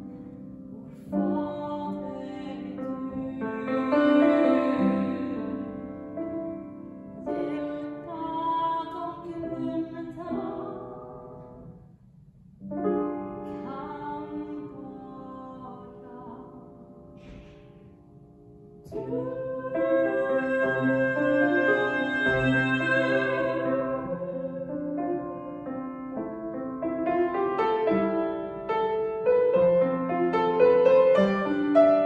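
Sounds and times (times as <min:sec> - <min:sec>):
grand piano: 0:00.0 - 0:32.0
woman singing: 0:01.0 - 0:06.4, 0:07.3 - 0:11.4, 0:13.5 - 0:16.9, 0:18.9 - 0:25.6.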